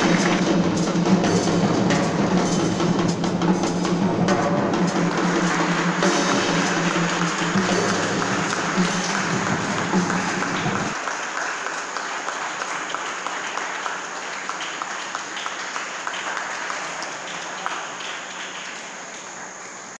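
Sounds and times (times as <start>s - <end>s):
audience applauding: 0.0s - 2.8s, 3.6s - 20.0s
music: 0.0s - 11.0s.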